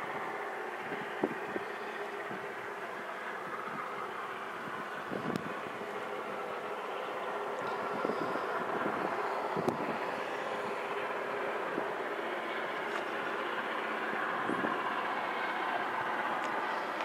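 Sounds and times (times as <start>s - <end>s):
distant train droning: 0.0s - 17.0s.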